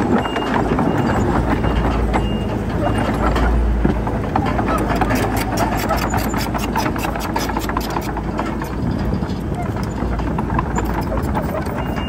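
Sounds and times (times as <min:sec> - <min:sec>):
heavy diesel engine running: 0:00.0 - 0:12.0
sharp metallic clicking: 0:04.7 - 0:12.0.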